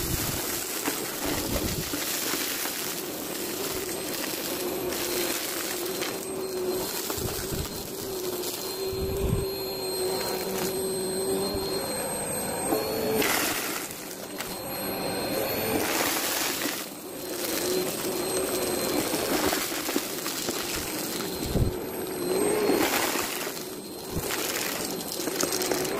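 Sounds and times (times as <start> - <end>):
debris rattling into vacuum: 0.0 - 9.0, 15.8 - 21.8, 22.5 - 25.9
vacuum cleaner whining: 0.0 - 25.9.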